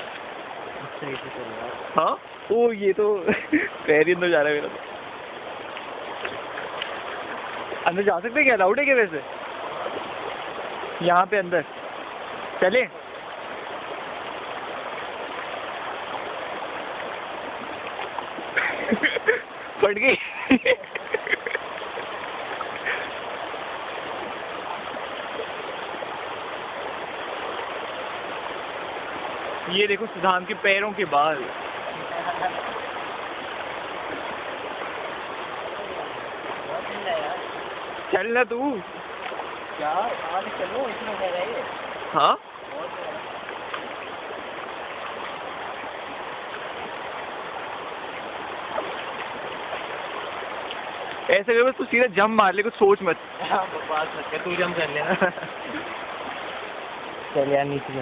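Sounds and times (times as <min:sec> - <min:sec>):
flowing water hiss: 0:00.0 - 0:58.0.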